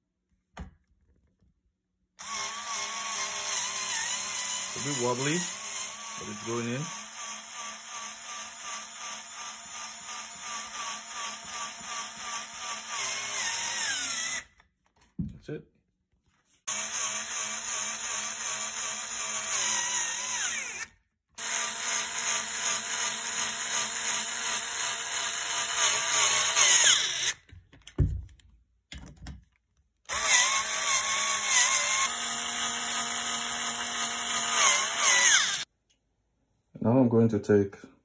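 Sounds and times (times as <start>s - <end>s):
cordless screwdriver whirring: 16.7s - 27.4s, 30.1s - 35.7s.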